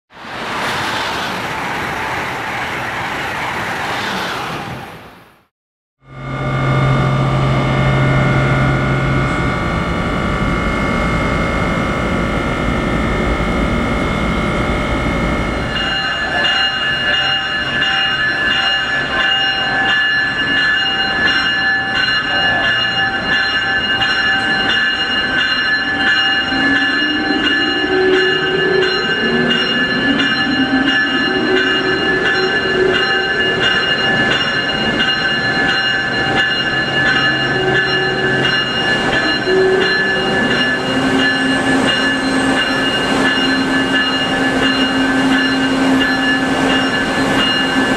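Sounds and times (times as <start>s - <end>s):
high-pitched electrical whines: 6.0s - 16.5s
locomotive low rumble: 6.0s - 47.9s.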